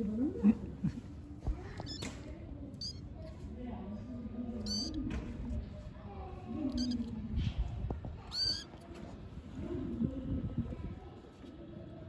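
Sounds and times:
kitten mewing: 0:02.8 - 0:03.0, 0:04.6 - 0:05.0, 0:06.7 - 0:07.1, 0:08.2 - 0:08.8.

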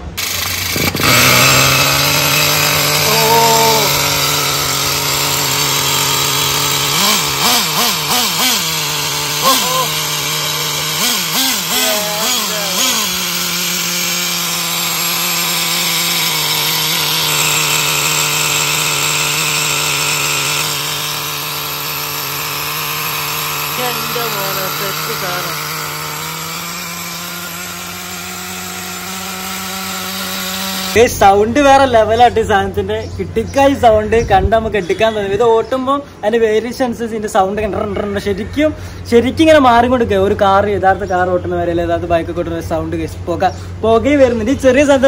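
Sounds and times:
small model engine revving: 0:00.0 - 0:32.9.

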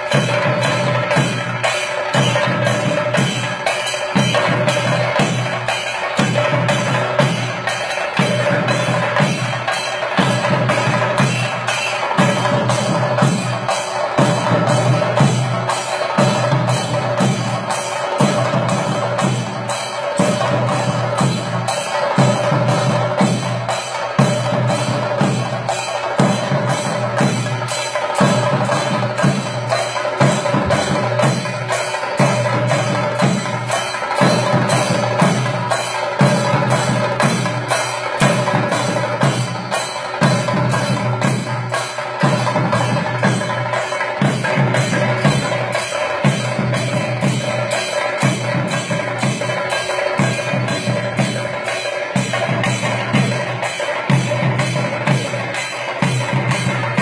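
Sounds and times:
drums beaten with sticks: 0:00.0 - 0:57.0.

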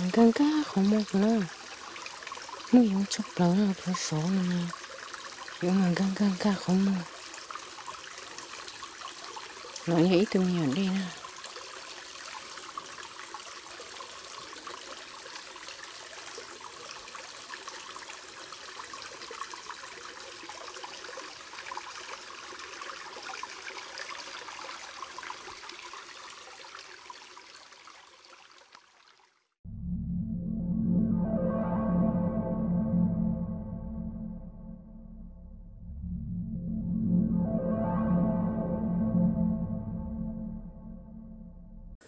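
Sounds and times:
creek trickling: 0:00.0 - 0:29.6.

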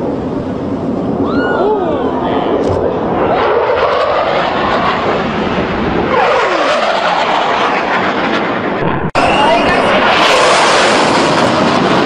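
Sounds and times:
fighter jet roaring past: 0:00.0 - 0:12.0
jet whine dropping in pitch: 0:02.5 - 0:12.0.

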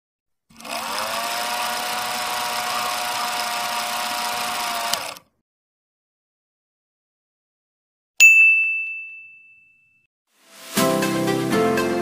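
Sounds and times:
film projector whirring: 0:00.5 - 0:05.3.

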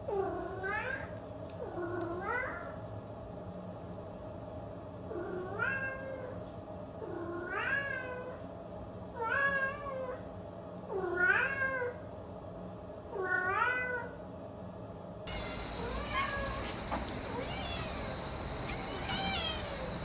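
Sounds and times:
cat meowing: 0:15.3 - 0:20.0.

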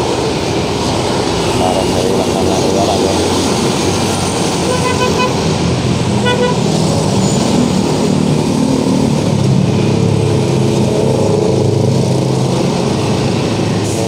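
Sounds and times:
motorcycles and scooters passing: 0:00.0 - 0:14.0
horn toot: 0:04.6 - 0:05.4, 0:06.2 - 0:06.8.

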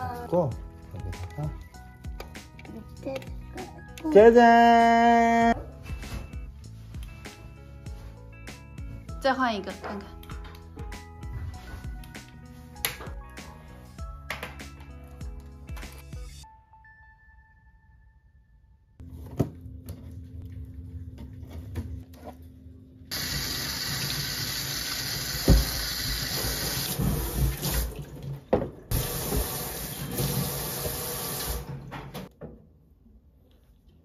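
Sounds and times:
tap water running into sink: 0:23.1 - 0:31.7.

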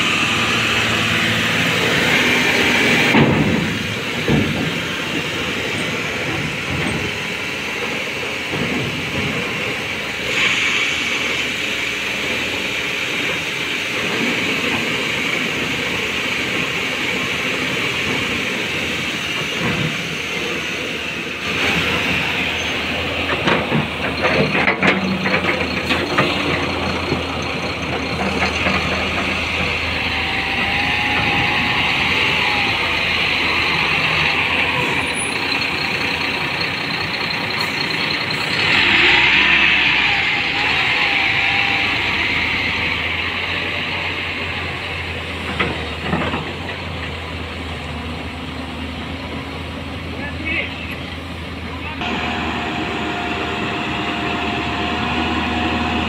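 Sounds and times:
diesel engines running hard: 0:00.0 - 0:56.0
knocks and clatter: 0:03.0 - 0:05.0, 0:23.2 - 0:29.8.

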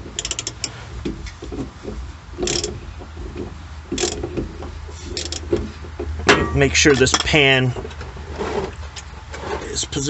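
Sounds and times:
ratchet clicking: 0:00.2 - 0:00.8, 0:02.4 - 0:02.8, 0:04.0 - 0:04.2, 0:05.1 - 0:05.5.

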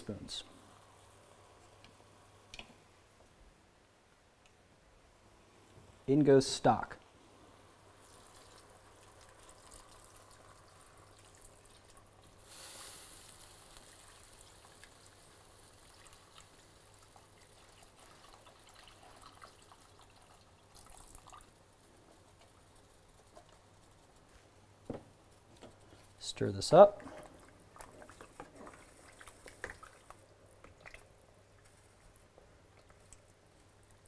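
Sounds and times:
liquid pouring into pot: 0:07.9 - 0:22.7.

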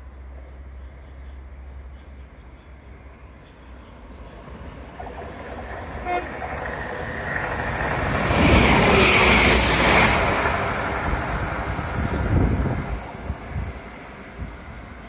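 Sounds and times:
train passing at speed: 0:00.0 - 0:15.0
train horn toot: 0:06.0 - 0:06.4.

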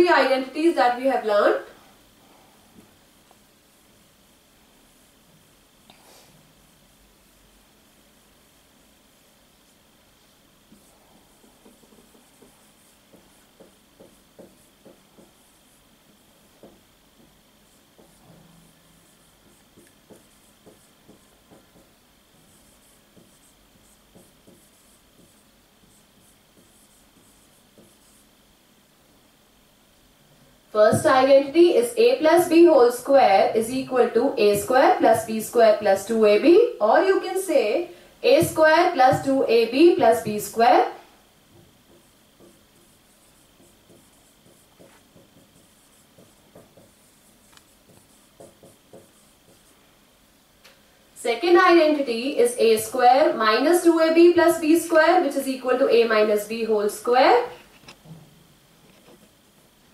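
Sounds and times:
marker scratching on whiteboard: 0:09.6 - 0:28.3, 0:38.3 - 0:40.8, 0:41.5 - 0:49.8
marker tip tapping board: 0:11.4 - 0:15.4, 0:16.6 - 0:17.4, 0:18.0 - 0:18.2, 0:19.4 - 0:22.0, 0:23.1 - 0:23.5, 0:24.1 - 0:25.4, 0:26.6 - 0:28.2, 0:41.5 - 0:49.7.

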